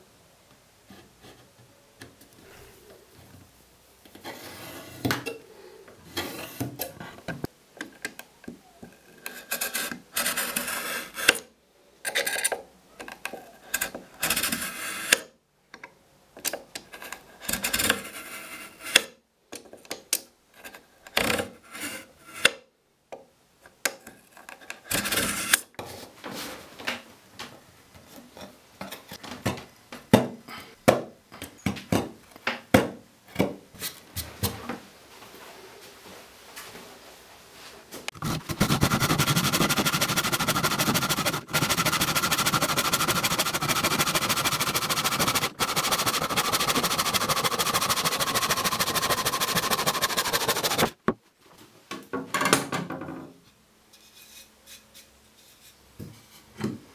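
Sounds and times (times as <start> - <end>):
knife scraping wood: 9.2 - 11.4, 38.1 - 51.0.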